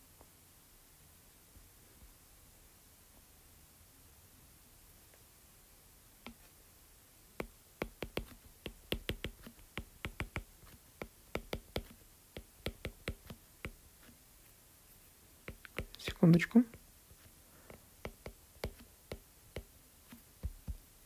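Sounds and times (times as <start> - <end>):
stylus tapping on a tablet: 6.2 - 6.5, 7.4 - 14.1, 15.4 - 20.9.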